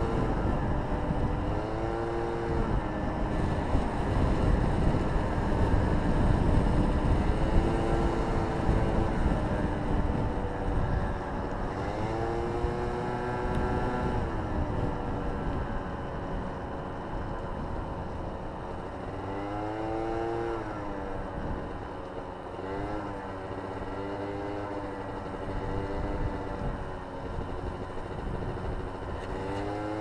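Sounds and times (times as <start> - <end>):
motorcycle engine revving: 0.0 - 30.0
wind rush on microphone: 0.0 - 30.0.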